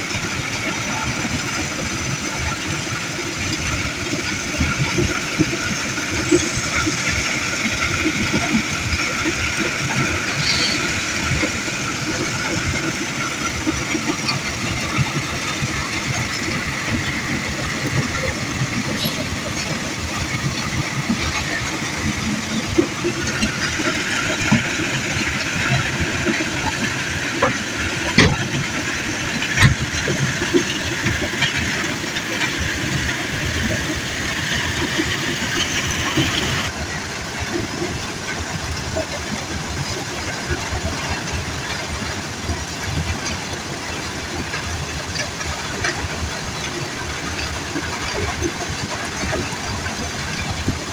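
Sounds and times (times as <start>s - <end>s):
diesel truck engines running: 0.0s - 50.9s.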